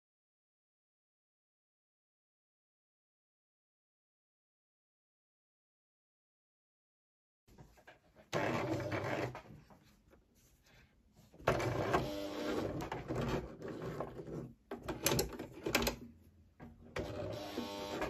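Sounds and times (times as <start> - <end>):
sewing machine stitching: 8.3 - 9.5, 11.4 - 16.0, 16.9 - 18.0.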